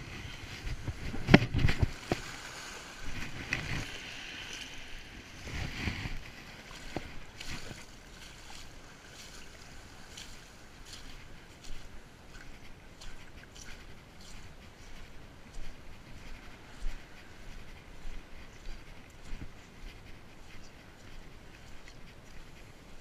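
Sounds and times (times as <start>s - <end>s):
kayak hull scraping over shingle: 0.0s - 8.0s
water splashing: 0.0s - 14.6s.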